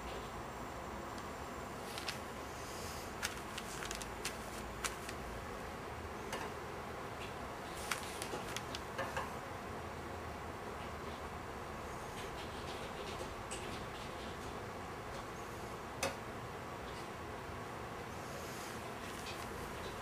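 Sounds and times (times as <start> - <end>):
room hiss: 0.0 - 12.4, 14.6 - 20.0
brush and paper ticks and taps: 1.9 - 2.2, 3.2 - 5.2, 7.7 - 9.1, 19.0 - 20.0.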